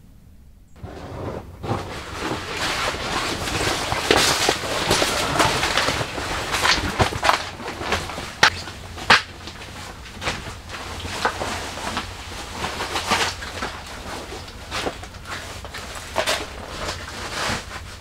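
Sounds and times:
bag rustling and scuffing: 0:00.8 - 0:08.9
footsteps: 0:00.8 - 0:18.0.

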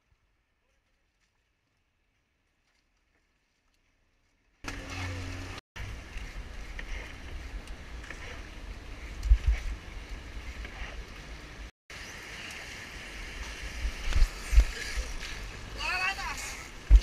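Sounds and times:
rush of wind: 0:05.8 - 0:17.0
surf noise: 0:12.0 - 0:17.0.

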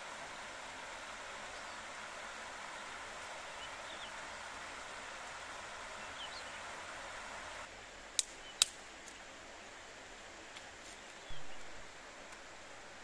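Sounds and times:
stream rippling over stones: 0:00.0 - 0:13.0
dry twigs snapping: 0:08.2 - 0:09.2.

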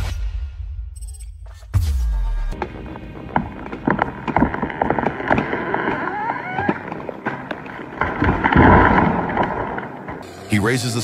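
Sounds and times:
tree cracking and snapping: 0:02.6 - 0:10.3
tree crashing through branches: 0:02.8 - 0:10.3.

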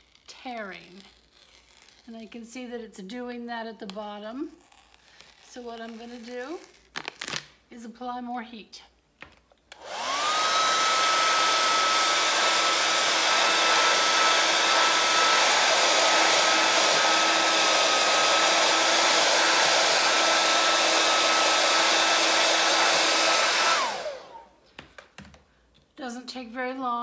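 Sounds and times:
hair dryer blowing: 0:09.7 - 0:24.6.

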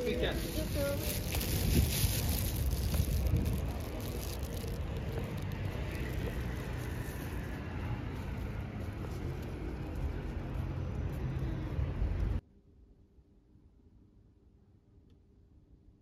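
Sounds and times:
road traffic rumble: 0:00.0 - 0:12.4.

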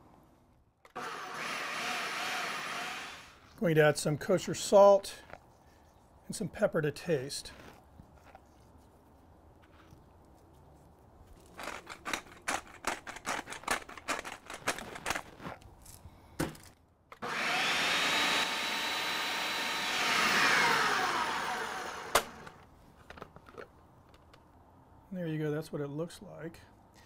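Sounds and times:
food processor motor whine: 0:00.9 - 0:03.4, 0:17.2 - 0:22.6.

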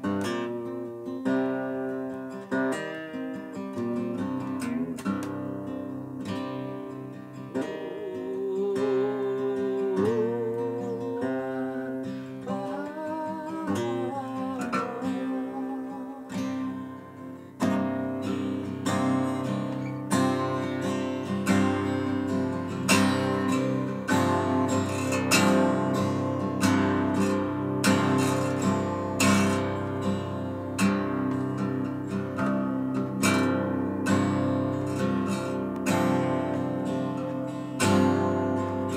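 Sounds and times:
acoustic guitar: 0:00.0 - 0:38.9.

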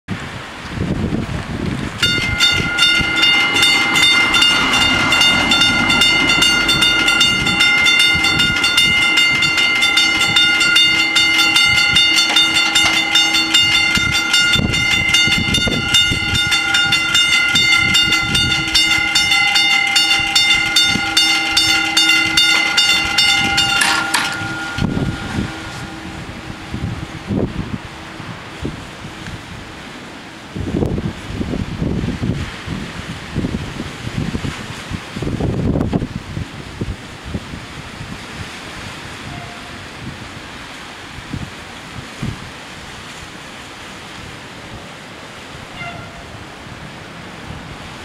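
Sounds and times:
level crossing warning bells ringing: 0:02.0 - 0:30.5.

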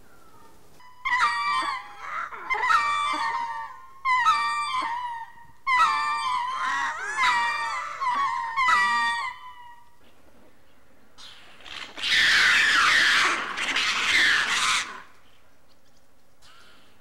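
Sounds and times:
lemur yelping calls: 0:00.1 - 0:10.0, 0:11.2 - 0:15.3
lemur harsh shrieking: 0:01.0 - 0:09.8, 0:11.2 - 0:15.2.

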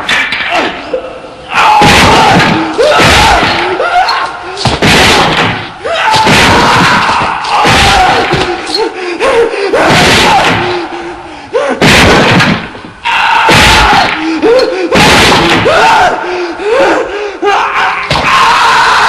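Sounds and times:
young man screaming and groaning: 0:00.5 - 0:04.6, 0:05.8 - 0:11.0, 0:13.0 - 0:19.0.

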